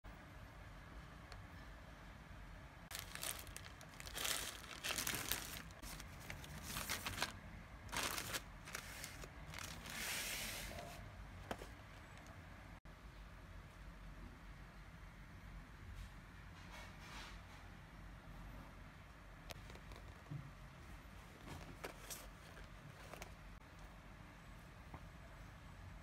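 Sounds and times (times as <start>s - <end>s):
plastic mailer bag crinkling: 2.9s - 10.2s.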